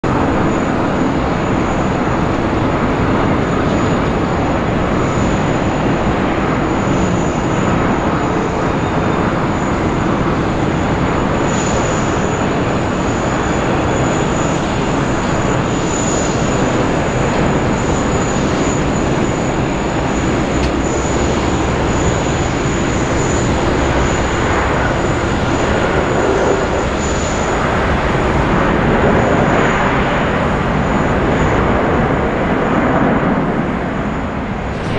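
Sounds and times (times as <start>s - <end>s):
jet engines roaring: 0.0s - 34.9s.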